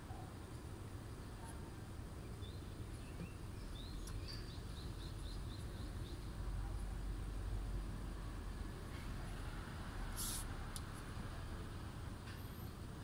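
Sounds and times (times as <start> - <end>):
low outdoor rumble: 0.0 - 13.0
small bird chirping: 2.2 - 6.4.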